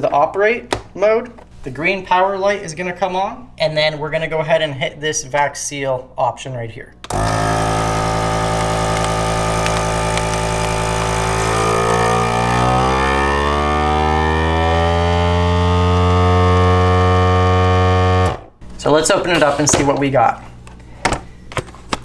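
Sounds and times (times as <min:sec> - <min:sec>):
vacuum sealer pump running: 0:07.0 - 0:18.9.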